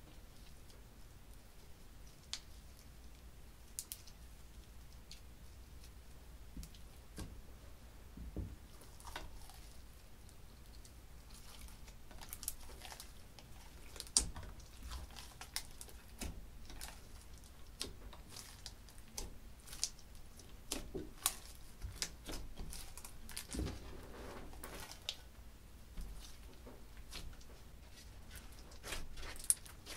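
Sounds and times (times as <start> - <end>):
slime squelch: 8.6 - 29.9.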